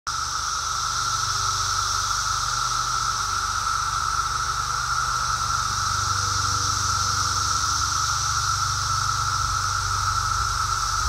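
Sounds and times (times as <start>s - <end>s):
cicadas droning: 0.1s - 11.0s
high hiss: 0.1s - 11.0s.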